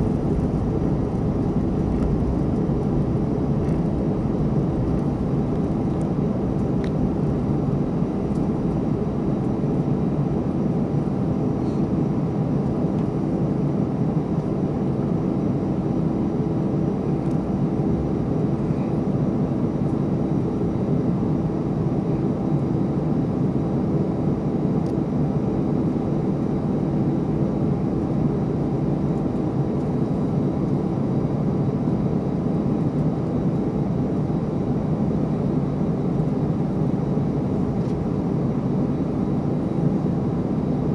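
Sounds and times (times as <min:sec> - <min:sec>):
jet engines rumbling: 0:00.0 - 0:22.4.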